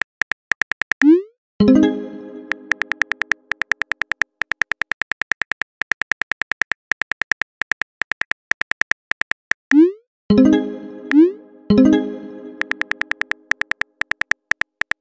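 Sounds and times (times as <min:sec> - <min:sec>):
phone keyboard key clicks: 0:00.0 - 0:01.1, 0:02.7 - 0:09.7, 0:12.6 - 0:15.0.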